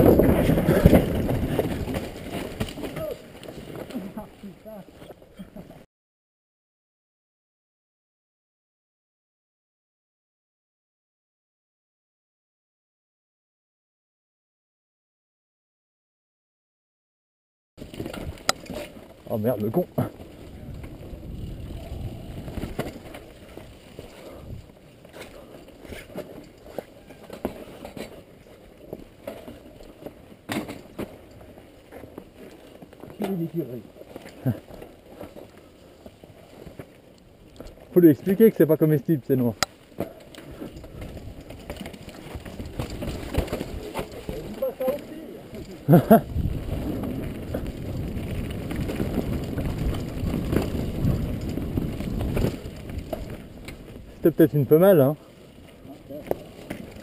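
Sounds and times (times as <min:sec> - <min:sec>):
wind on microphone: 0:00.0 - 0:02.0, 0:20.4 - 0:23.1, 0:46.1 - 0:54.2
bike clattering on rocks: 0:00.0 - 0:04.2, 0:17.8 - 0:21.4, 0:22.3 - 0:24.2, 0:25.0 - 0:37.0, 0:39.6 - 0:54.0
footsteps on rocky trail: 0:00.0 - 0:05.2, 0:39.6 - 0:54.2.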